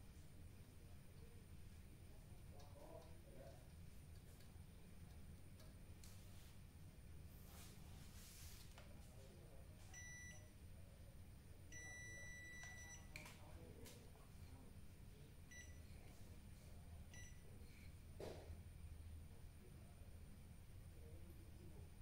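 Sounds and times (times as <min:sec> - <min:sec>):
multimeter buzzer beeping: 0:11.8 - 0:13.1.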